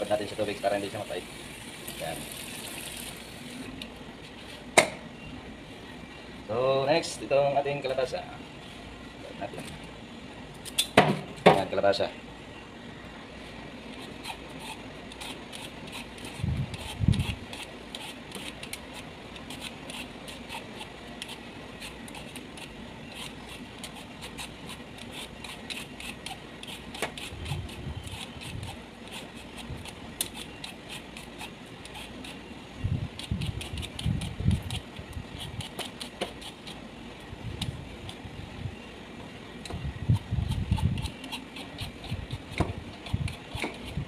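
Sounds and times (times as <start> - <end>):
knife scraping squash rind: 13.9 - 32.5, 33.1 - 36.8, 40.1 - 44.0.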